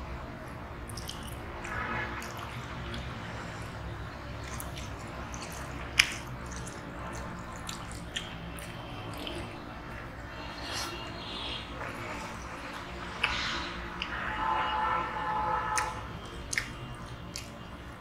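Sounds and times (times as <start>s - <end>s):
wet mouth sounds: 0.8s - 3.2s, 4.4s - 11.0s, 15.8s - 17.6s
fingers squishing wet rice: 4.4s - 9.5s, 15.8s - 17.5s.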